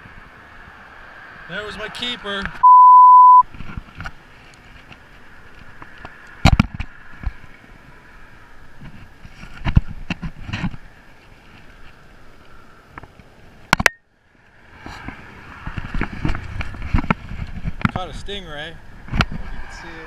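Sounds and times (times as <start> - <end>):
wind hiss: 14.5 - 20.0.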